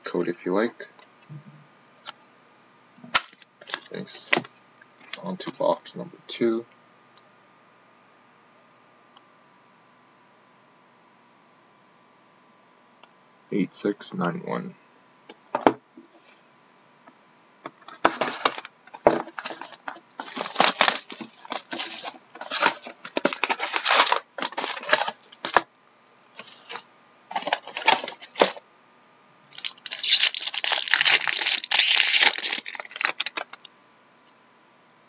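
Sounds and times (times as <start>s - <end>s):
wrappers rustling and tearing: 18.0s - 25.7s, 26.3s - 28.6s, 29.5s - 33.6s.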